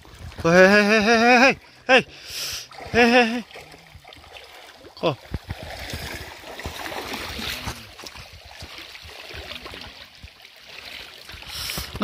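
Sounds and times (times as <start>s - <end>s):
river water rushing: 0.0s - 12.0s
light knocks and splashes: 2.7s - 12.0s.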